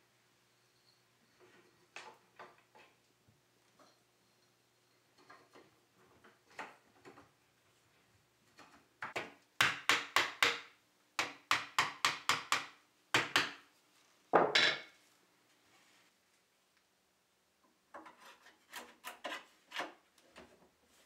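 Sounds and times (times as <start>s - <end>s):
wooden mallet knocking on wood: 9.0s - 13.6s.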